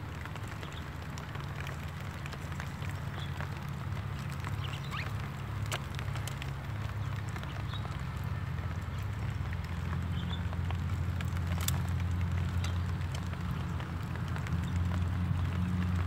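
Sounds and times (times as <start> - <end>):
light crackles and ticks: 0.0 - 16.0.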